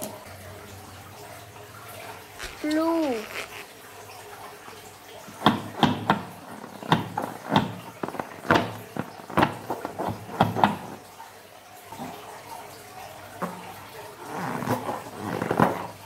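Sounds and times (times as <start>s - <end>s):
rubber balloon squeaking: 2.4s - 3.7s, 14.2s - 15.9s.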